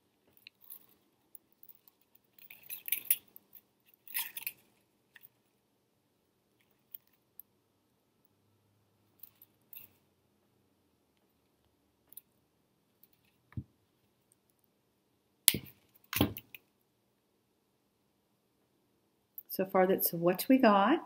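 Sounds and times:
handling rustles: 0.0s - 5.6s.

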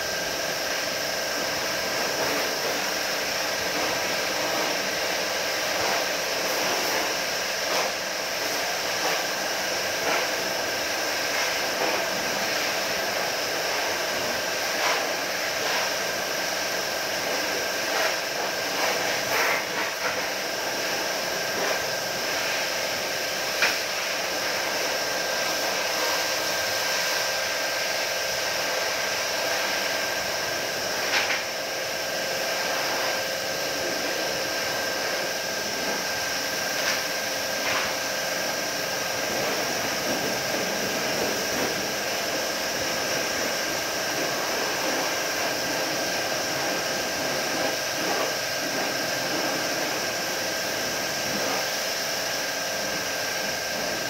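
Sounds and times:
spray gun hissing: 0.0s - 54.0s
steady whine: 27.8s - 54.0s.

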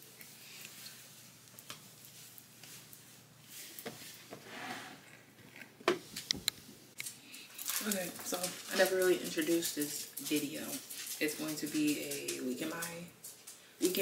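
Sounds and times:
faint rustling and handling: 0.0s - 14.0s.

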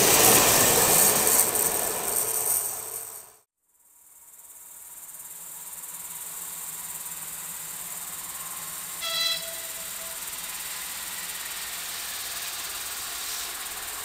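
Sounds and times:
crickets chirring: 4.0s - 14.0s
short pitched tone: 9.0s - 10.3s.

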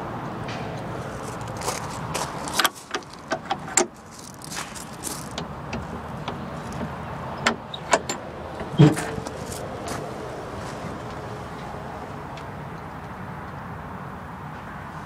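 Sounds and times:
sharp clicks and knocks: 0.5s - 10.1s.

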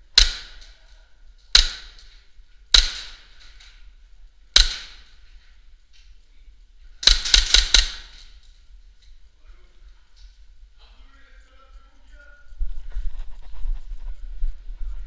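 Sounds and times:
airsoft pistol shots echoing: 0.1s - 0.8s, 1.5s - 2.0s, 2.7s - 3.4s, 4.6s - 5.1s, 7.0s - 8.2s.

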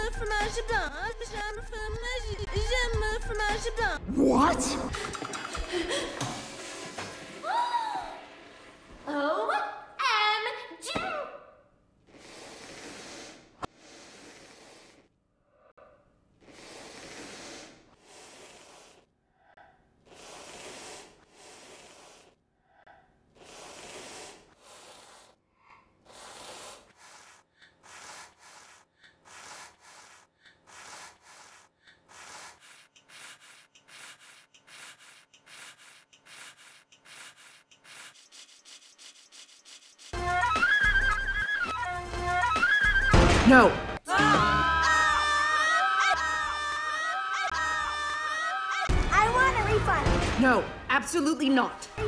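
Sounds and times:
heavy breathing: 12.0s - 37.6s.

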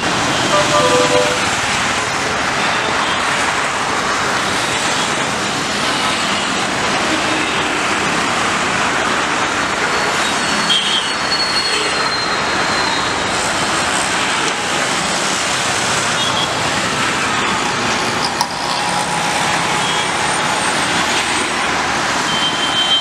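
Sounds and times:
thin high tone: 0.5s - 1.5s.

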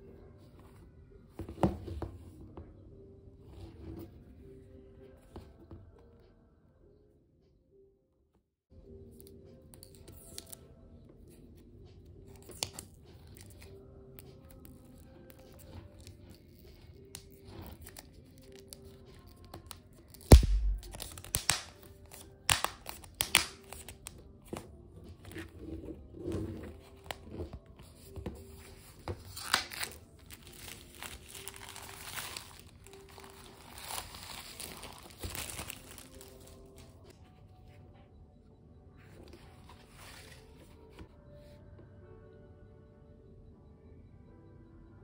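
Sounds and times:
soft background music: 0.0s - 45.0s
sharp snap and thump: 20.3s - 21.6s
plastic wrap crackling: 29.3s - 36.6s.

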